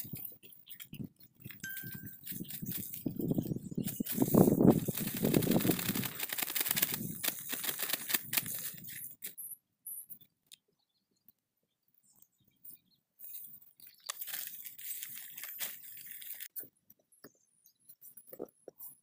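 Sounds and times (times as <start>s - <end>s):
soil rustling: 0.0s - 9.4s, 13.2s - 16.7s
dry leaves crunching: 1.8s - 3.2s, 3.9s - 8.9s, 14.0s - 16.5s
plastic bag crinkling: 3.8s - 9.3s, 14.0s - 16.6s.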